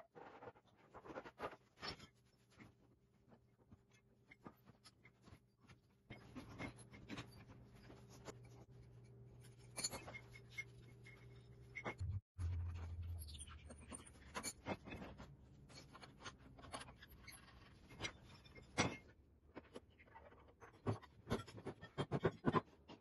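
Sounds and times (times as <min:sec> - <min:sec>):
low steady hum: 0:07.9 - 0:14.1.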